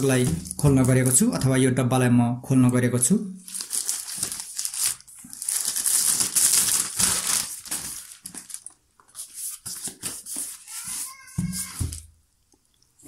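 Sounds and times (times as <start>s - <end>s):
plastic shrink-wrap crinkling: 3.4s - 12.0s.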